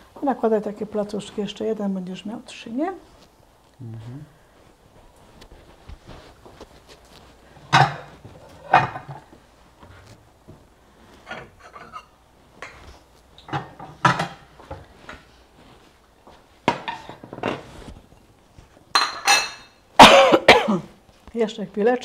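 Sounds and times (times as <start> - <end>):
kitchen utensils clinking and scraping: 7.7 - 9.3, 11.2 - 12.8, 18.9 - 19.8.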